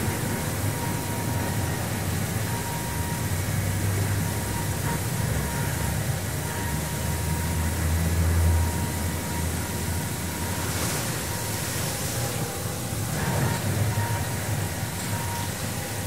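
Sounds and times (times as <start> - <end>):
low machinery hum: 0.0 - 16.0
hiss of spraying water: 10.2 - 13.2.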